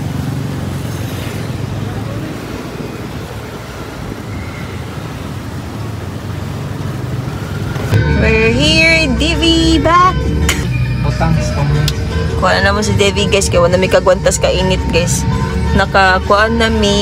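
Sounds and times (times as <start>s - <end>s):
city traffic noise: 0.0s - 17.0s.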